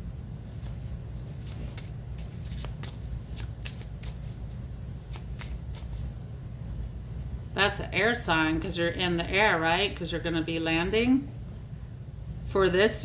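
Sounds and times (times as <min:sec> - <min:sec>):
cards being shuffled: 0:00.4 - 0:07.0.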